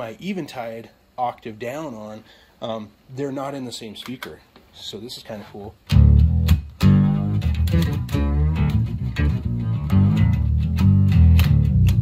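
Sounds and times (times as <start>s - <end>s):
plucked electric bass notes: 5.8s - 12.0s.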